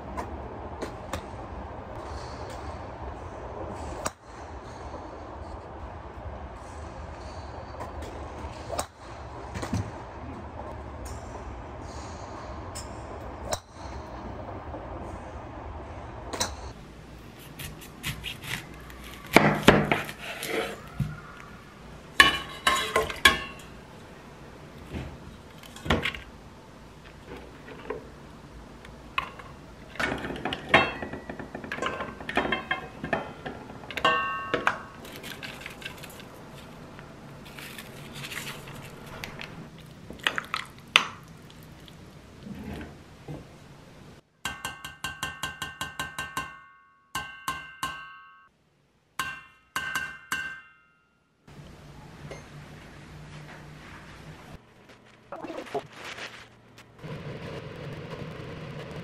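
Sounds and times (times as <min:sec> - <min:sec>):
metal pot and utensils clanking: 0:22.2 - 0:23.8, 0:29.2 - 0:36.7.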